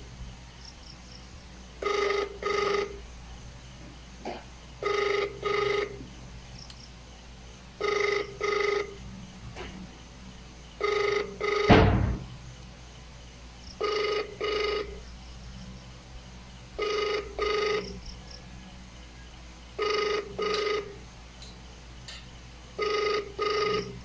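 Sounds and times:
phone ringback tone: 1.8 - 3.0, 4.8 - 6.0, 7.8 - 9.0, 10.8 - 11.8, 13.8 - 15.0, 16.8 - 18.0, 19.8 - 21.0, 22.8 - 24.0
loud thump: 11.7 - 12.4.

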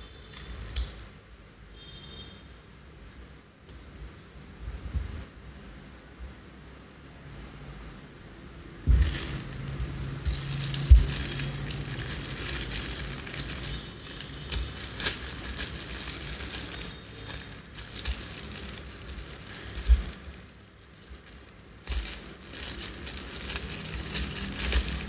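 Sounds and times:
plastic bag crinkling: 8.9 - 25.0.

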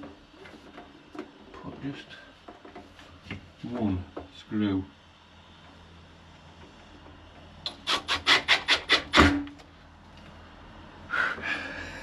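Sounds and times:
hand tool rasping: 7.7 - 9.4.

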